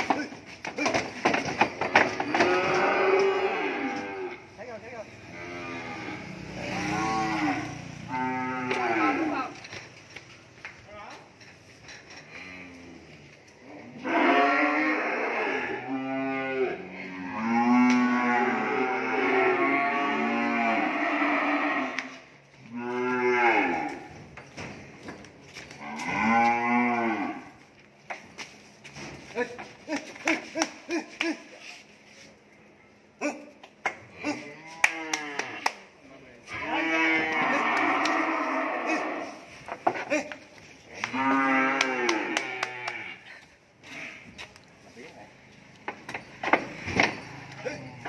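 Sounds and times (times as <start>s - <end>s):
cattle mooing: 1.8s - 4.5s, 5.2s - 9.6s, 13.8s - 24.1s, 25.7s - 27.5s, 36.5s - 39.6s, 41.0s - 43.2s.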